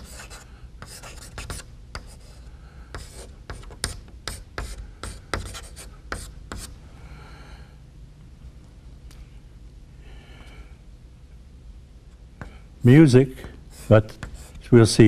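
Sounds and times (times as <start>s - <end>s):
chalk writing on blackboard: 0.0s - 6.7s, 13.3s - 15.0s.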